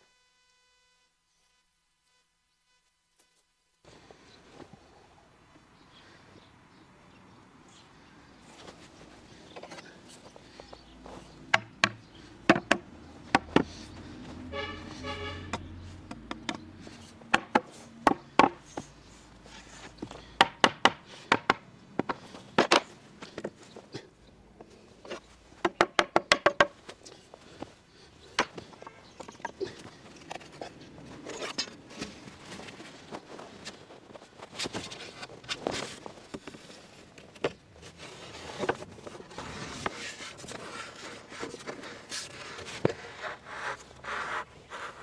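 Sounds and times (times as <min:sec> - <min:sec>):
small hammer tapping wood joints: 0:11.5 - 0:13.7, 0:16.0 - 0:16.7, 0:17.3 - 0:18.9, 0:20.4 - 0:23.5, 0:25.6 - 0:26.8.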